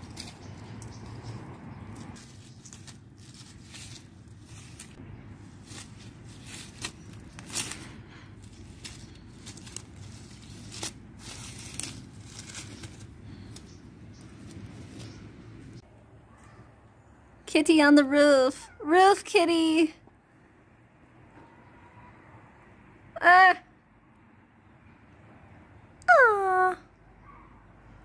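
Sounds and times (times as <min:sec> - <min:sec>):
dry leaves crackling: 0:00.0 - 0:15.8
low steady rumble: 0:00.0 - 0:16.0.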